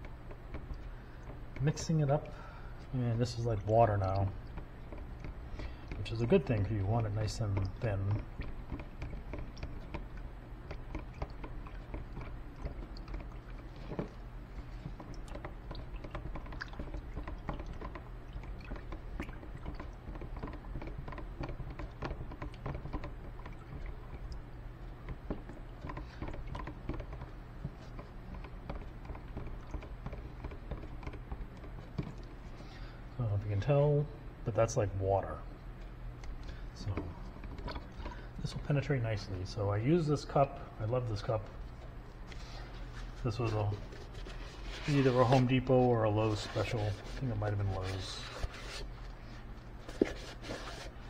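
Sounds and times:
stick stirring varnish in tub: 0.0s - 33.7s, 36.8s - 51.0s
steady low hum: 0.0s - 51.0s.

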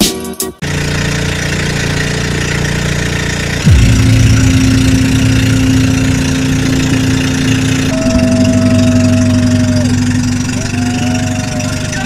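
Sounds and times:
boat engine droning: 0.6s - 12.0s
steady higher whine: 3.6s - 12.0s.

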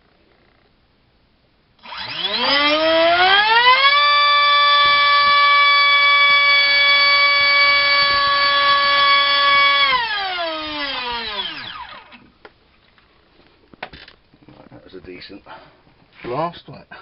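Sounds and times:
electric motor whine: 1.8s - 12.3s.

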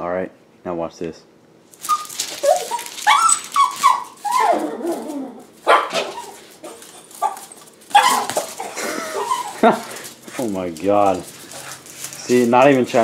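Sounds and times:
dog whining and barking: 1.8s - 9.9s.

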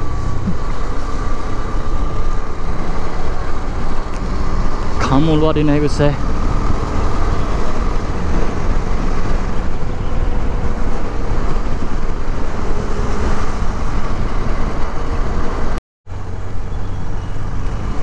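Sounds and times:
motorcycle engine running: 0.0s - 15.2s
wind rushing over microphone: 0.0s - 18.0s.

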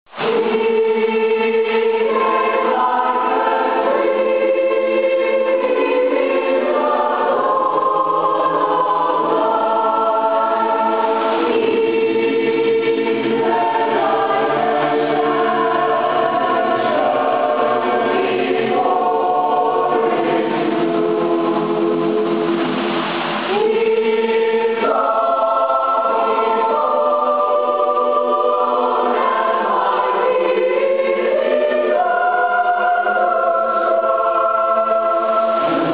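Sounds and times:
choir singing in parts: 0.1s - 35.9s.

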